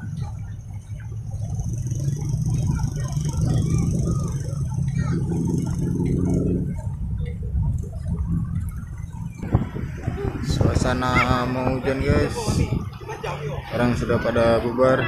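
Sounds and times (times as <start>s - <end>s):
motorcycle engine running: 0.0s - 10.5s
crowd chatter and calls: 0.0s - 15.0s.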